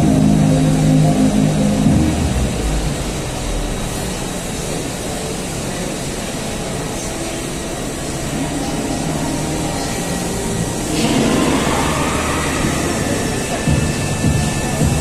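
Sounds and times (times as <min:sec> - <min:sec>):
milling machine cutting metal: 0:08.3 - 0:15.0.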